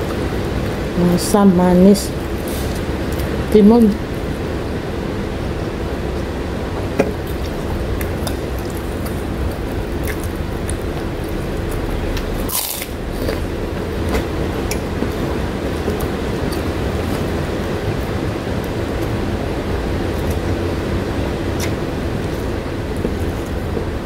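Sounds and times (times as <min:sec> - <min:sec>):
heavy rain hissing: 0:00.0 - 0:24.0
wet eating sounds by hand: 0:06.1 - 0:24.0.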